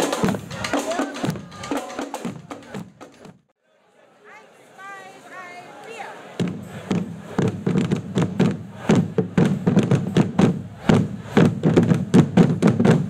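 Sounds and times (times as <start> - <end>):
marching band drums beating: 0.0 - 3.5, 6.4 - 13.0.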